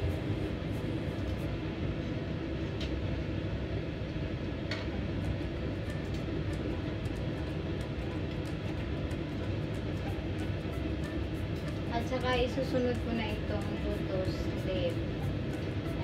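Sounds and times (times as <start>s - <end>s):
water boiling: 5.2s - 16.0s.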